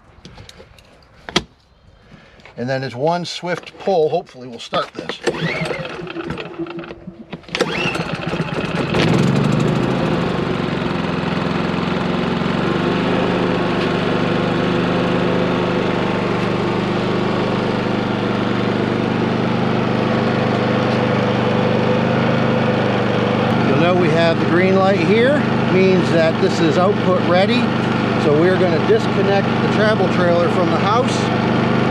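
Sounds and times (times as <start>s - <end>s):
generator engine running: 3.6s - 31.9s
recoil cord rattle: 5.0s - 8.7s.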